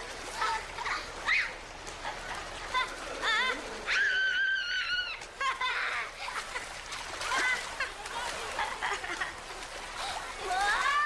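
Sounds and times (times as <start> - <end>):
splashing in pool water: 0.0 - 11.0
children squealing and laughing: 0.3 - 1.6, 2.7 - 9.3, 10.0 - 11.0.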